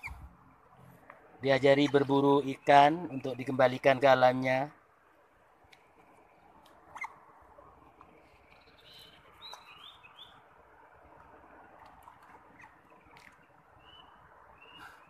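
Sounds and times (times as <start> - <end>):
small animal chirps: 6.9 - 7.2.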